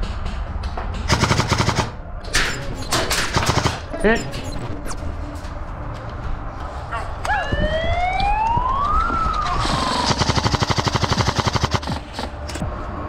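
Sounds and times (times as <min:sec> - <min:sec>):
airsoft gun full-auto burst: 0:01.1 - 0:02.0, 0:09.9 - 0:12.0
siren rising and falling: 0:07.2 - 0:11.3.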